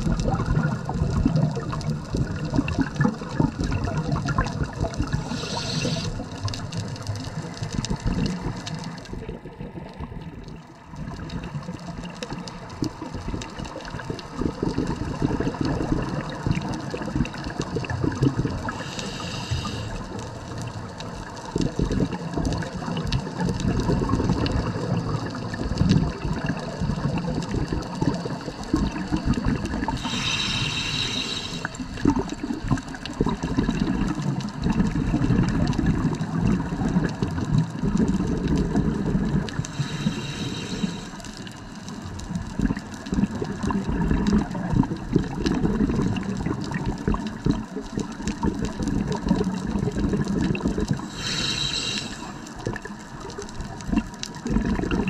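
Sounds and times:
bubbling exhaled air underwater: 0.0 - 55.0
hissing regulator inhale: 5.1 - 6.6, 18.5 - 20.3, 26.6 - 32.4, 39.5 - 42.0, 51.0 - 52.6.

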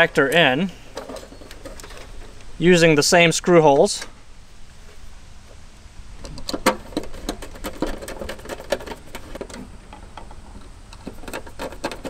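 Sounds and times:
clicks and knocks of handled parts: 0.2 - 2.5, 6.2 - 12.0.

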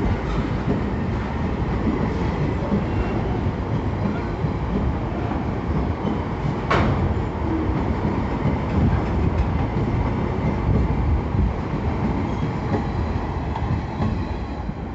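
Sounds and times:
train wheels rumbling on rails: 0.0 - 14.9.

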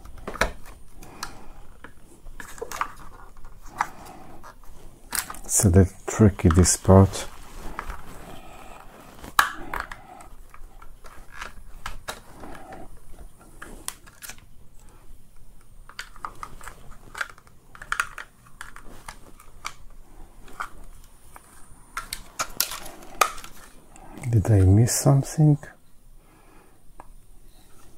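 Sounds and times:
plastic parts clicking and tapping: 0.0 - 5.5, 6.1 - 6.9, 9.2 - 24.8.

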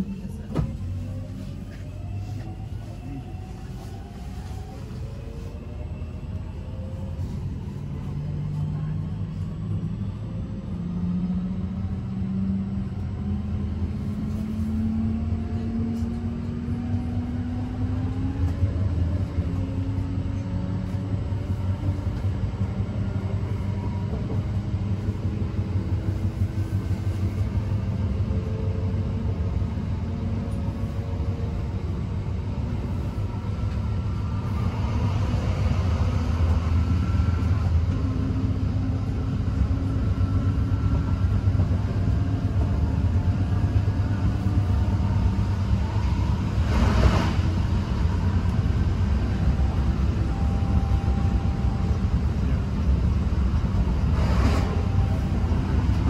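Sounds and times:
train wheels rumbling on track: 0.0 - 56.0.

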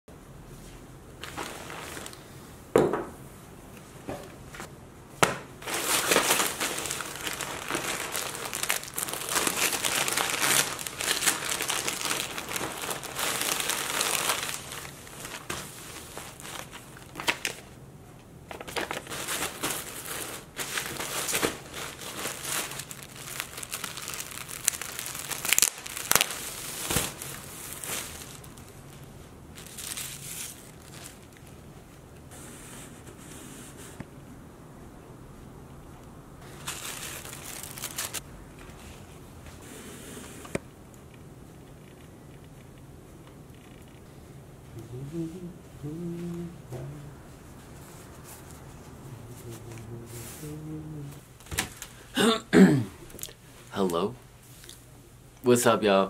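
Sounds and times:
plastic bag crinkling: 1.2 - 2.2, 5.6 - 17.8, 18.5 - 31.6, 36.4 - 38.2.

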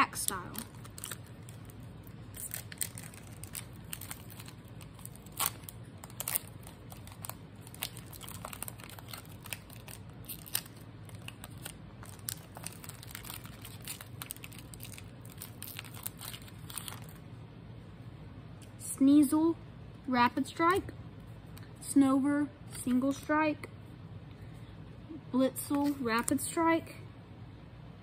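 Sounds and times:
foil wrapper crinkling and tearing: 0.0 - 17.2
faint low hum: 0.0 - 28.0.

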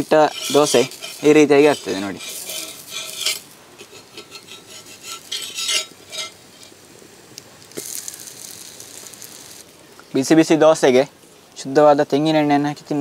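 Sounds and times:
metal spatula scraping griddle: 0.0 - 6.8
dosa sizzling on griddle: 0.0 - 11.4.

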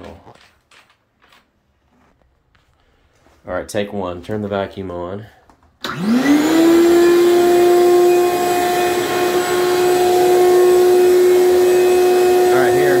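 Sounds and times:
shop vacuum motor whine: 5.8 - 13.0.

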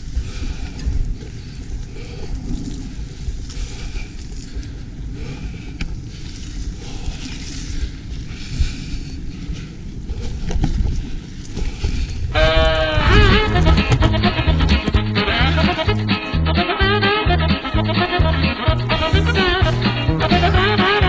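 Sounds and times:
wind buffeting microphone: 0.0 - 16.4
tyre rumble on dirt: 12.4 - 16.1
music: 13.0 - 21.0.

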